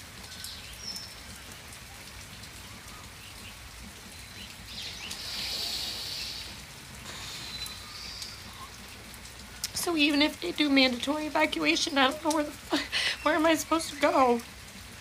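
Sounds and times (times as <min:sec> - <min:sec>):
even outdoor hiss: 0:00.0 - 0:15.0
faint chirps: 0:04.3 - 0:08.8.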